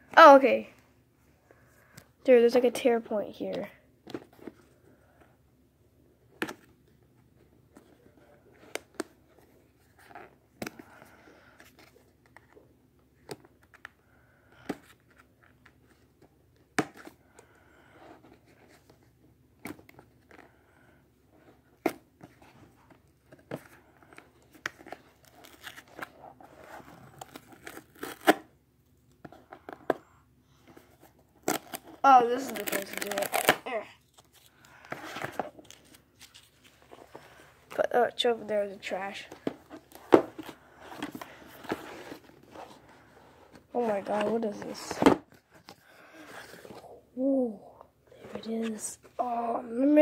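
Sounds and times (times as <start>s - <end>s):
cardboard packaging tearing: 27.0s - 28.5s, 31.4s - 33.7s
paper rustling: 32.2s - 37.8s.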